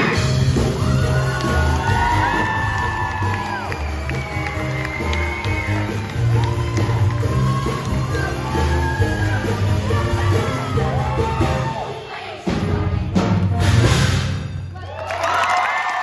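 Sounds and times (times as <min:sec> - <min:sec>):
loud music with heavy bass: 0:00.0 - 0:11.7
show choir singing: 0:07.9 - 0:13.8.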